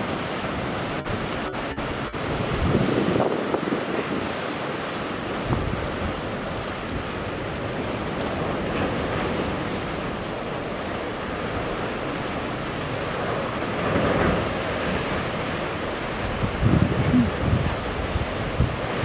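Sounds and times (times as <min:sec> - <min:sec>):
sea surf washing against rocks: 0:00.0 - 0:19.0
wind buffeting microphone: 0:00.0 - 0:19.0.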